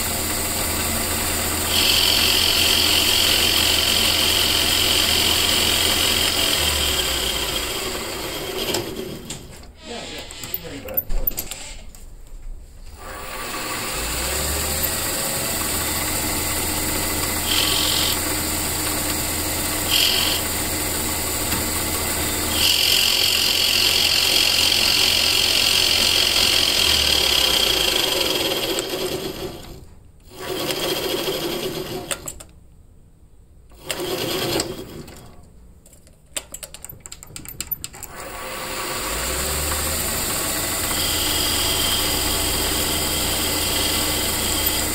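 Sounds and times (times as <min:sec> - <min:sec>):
metal lathe motor humming: 0:00.0 - 0:09.4, 0:13.0 - 0:29.7, 0:38.1 - 0:44.9.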